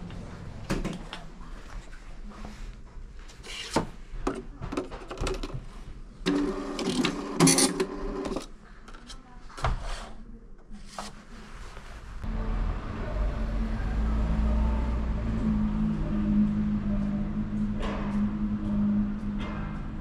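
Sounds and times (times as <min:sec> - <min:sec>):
time clock printing whirr: 0:06.2 - 0:08.4.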